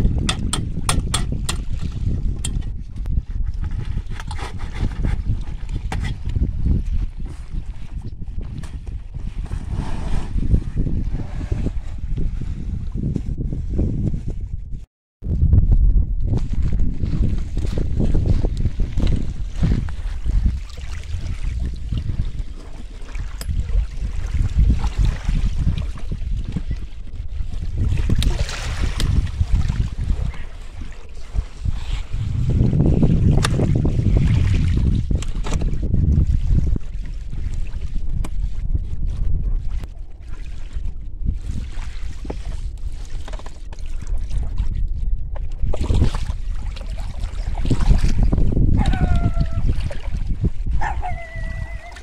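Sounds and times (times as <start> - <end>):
outboard motor clunks and rattles: 0.0 - 2.7, 35.1 - 35.9
wind buffeting microphone: 0.0 - 52.0
small waves lapping: 28.3 - 31.6.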